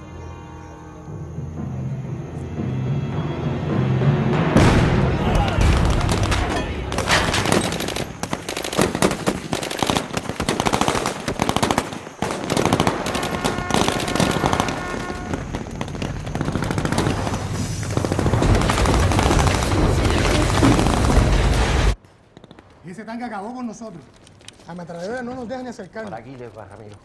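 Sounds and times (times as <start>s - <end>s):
machine-gun fire: 4.6s - 22.6s.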